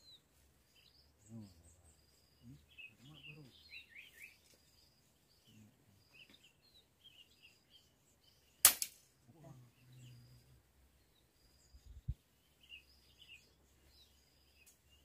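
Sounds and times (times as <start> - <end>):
small birds chirping: 0.0 - 15.0
sharp crack: 8.6 - 9.1.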